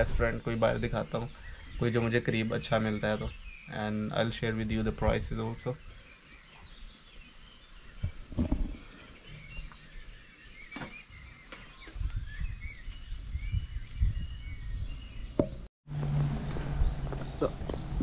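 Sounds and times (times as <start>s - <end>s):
street ambience with low hum: 0.0s - 7.2s, 14.4s - 18.0s
birds chirping: 0.0s - 15.7s, 16.3s - 18.0s
insects droning: 0.0s - 15.7s.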